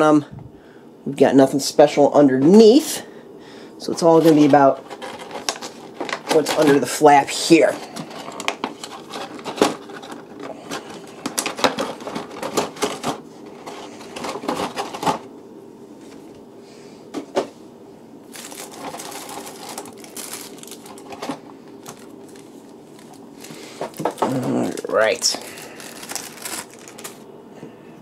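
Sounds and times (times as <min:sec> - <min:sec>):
soft plastic rustling: 0:03.9 - 0:15.2, 0:18.3 - 0:27.2
plastic packaging clicking: 0:04.9 - 0:06.8, 0:18.3 - 0:27.2.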